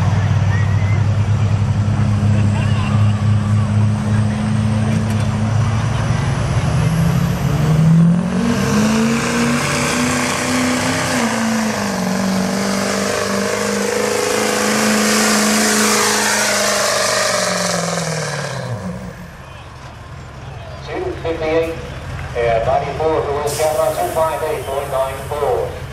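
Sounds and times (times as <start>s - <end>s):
diesel pickup engine revving: 0.0s - 25.9s
faint high whistle: 0.5s - 1.1s.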